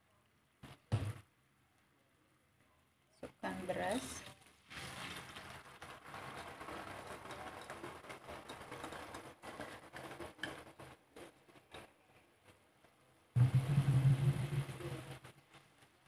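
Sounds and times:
rice grains pattering into a wok: 0:04.4 - 0:09.8.

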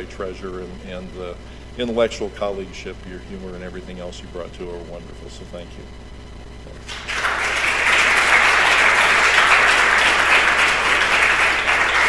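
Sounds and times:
audience applauding: 0:06.8 - 0:12.0.

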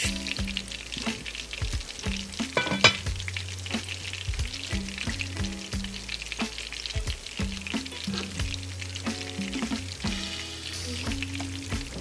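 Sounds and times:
background music with bass: 0:00.0 - 0:12.0
food frying in oil: 0:00.0 - 0:12.0.

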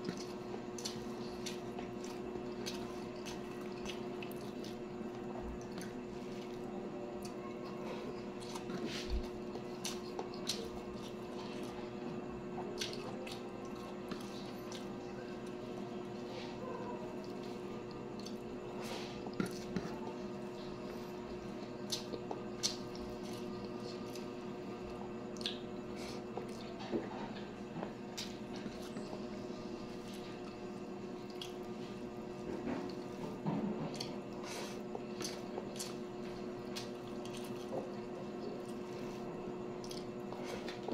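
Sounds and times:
person chewing wetly: 0:00.0 - 0:16.3, 0:17.1 - 0:40.9
steady low hum: 0:00.0 - 0:40.9.

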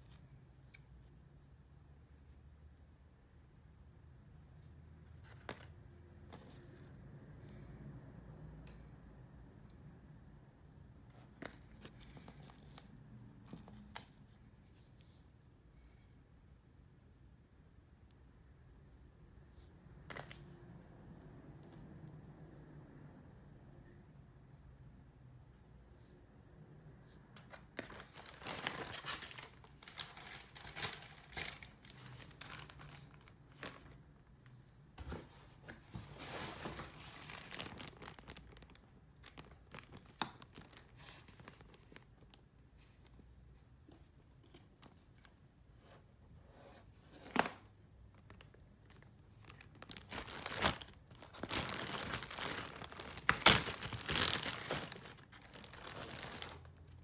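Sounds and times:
plastic bag crinkling: 0:27.9 - 0:33.8, 0:36.2 - 0:42.0, 0:49.4 - 0:56.8.

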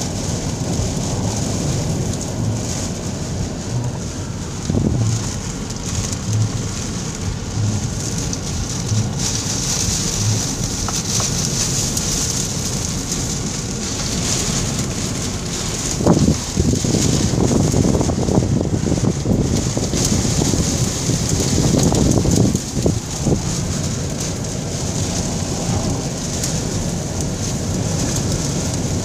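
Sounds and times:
heavy rain on car roof: 0:00.0 - 0:29.0
low rumbling: 0:00.0 - 0:29.0
soft low thumps: 0:03.5 - 0:11.4.

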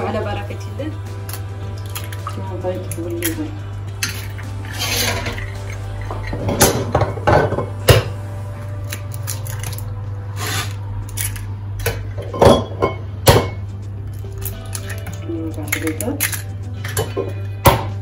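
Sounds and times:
eggshells crackling: 0:08.8 - 0:11.4.

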